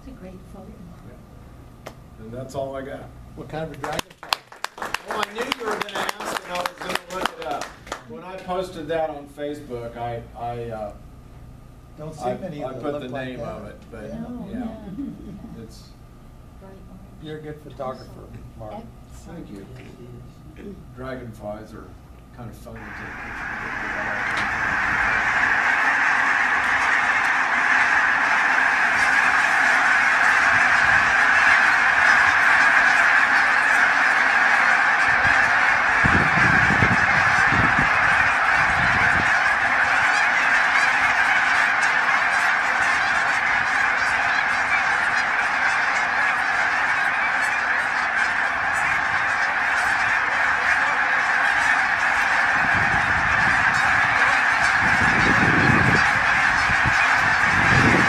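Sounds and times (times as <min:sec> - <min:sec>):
flock of geese honking: 0:04.8 - 0:08.8, 0:12.1 - 0:13.8, 0:22.7 - 0:58.0.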